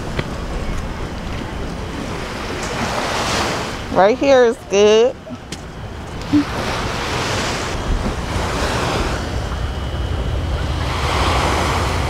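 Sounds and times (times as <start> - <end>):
waves washing onto sand: 0.0 - 4.5, 6.2 - 9.8, 10.7 - 12.0
heavy low rumble: 3.7 - 12.0.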